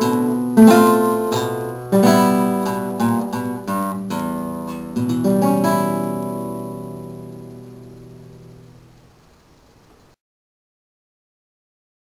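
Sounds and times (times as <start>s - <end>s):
acoustic guitar strumming: 0.0s - 9.1s.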